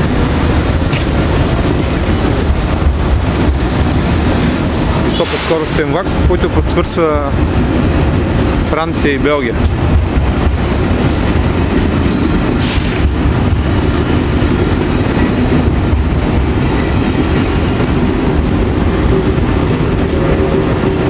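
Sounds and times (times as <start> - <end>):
electric train low rumble: 0.0 - 21.0
short hiss of air: 12.6 - 13.1.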